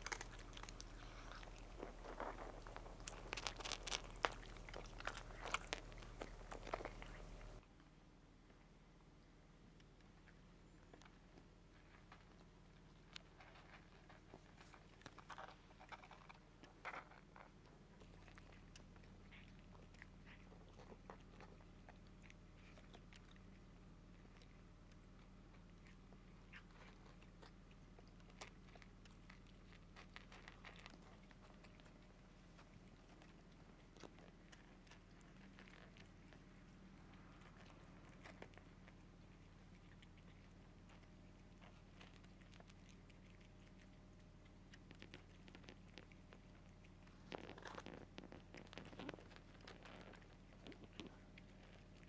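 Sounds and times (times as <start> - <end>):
cat crunching dry kibble: 0.0 - 7.6, 10.2 - 52.0
steady low hum: 0.0 - 7.6, 9.3 - 52.0.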